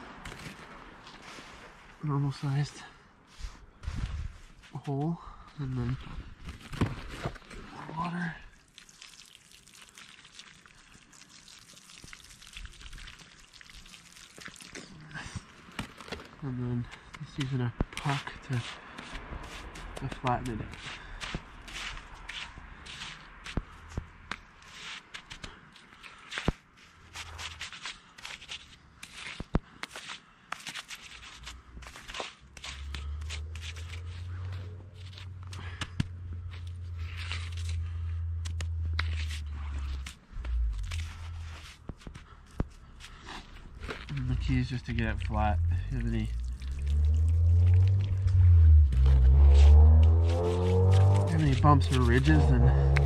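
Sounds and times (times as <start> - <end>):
water trickling into snow: 7.7 - 16.3, 43.8 - 48.4, 50.9 - 52.3
puck scraping wet slush: 17.4 - 23.6, 24.6 - 26.5, 27.1 - 35.8, 36.4 - 42.2, 42.9 - 53.0
low rumble: 35.7 - 41.7, 43.7 - 53.0.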